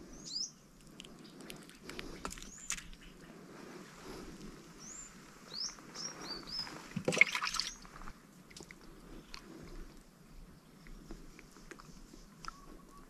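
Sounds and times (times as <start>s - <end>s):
small birds chirping: 0.0s - 8.0s, 10.4s - 13.0s
water splash: 7.0s - 7.8s.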